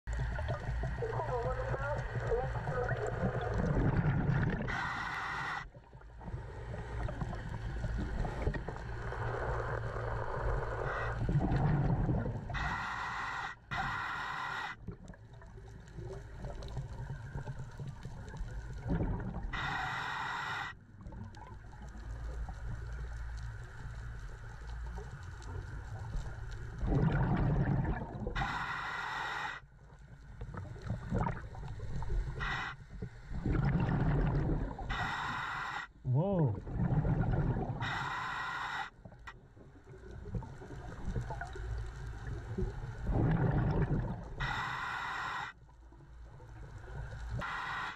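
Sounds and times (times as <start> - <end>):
exhaled air bubbling: 0.1 - 47.9
regulator inhale hiss: 4.5 - 5.8, 6.9 - 11.4, 12.5 - 14.8, 19.4 - 20.8, 28.3 - 29.7, 32.1 - 33.0, 34.8 - 36.0, 37.8 - 39.3, 44.3 - 45.7, 47.0 - 47.9.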